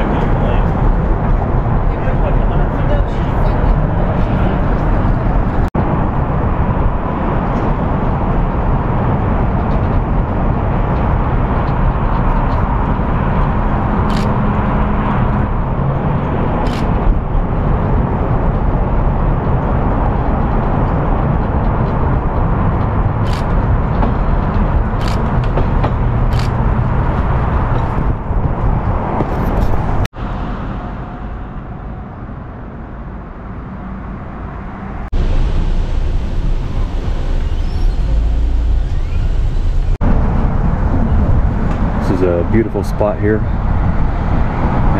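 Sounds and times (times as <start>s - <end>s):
road traffic rumble: 0.0s - 44.9s
sharp clicks: 25.0s - 25.6s, 26.3s - 26.6s.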